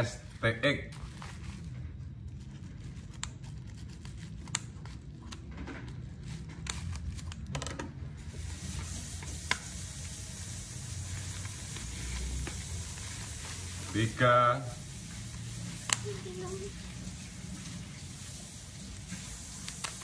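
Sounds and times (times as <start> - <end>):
steady hiss: 8.2 - 20.0.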